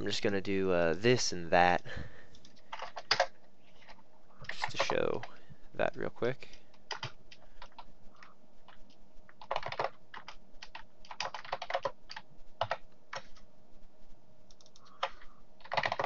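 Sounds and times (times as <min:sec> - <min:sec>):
typing on a keyboard: 0:02.4 - 0:05.3, 0:06.8 - 0:13.4, 0:14.5 - 0:16.0.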